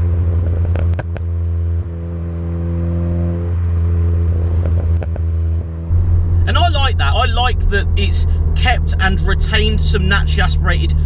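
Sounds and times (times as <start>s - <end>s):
car exhaust at steady revs: 0.0s - 11.0s
exhaust pops: 5.9s - 10.0s.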